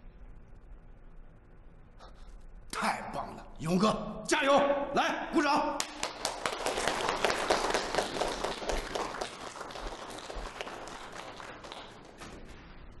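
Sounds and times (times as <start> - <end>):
crowd applauding: 5.8 - 12.3.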